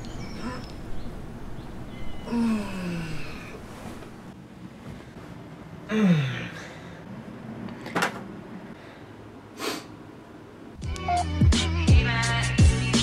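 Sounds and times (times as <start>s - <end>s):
man groaning drowsily: 2.3s - 3.6s, 5.9s - 7.0s.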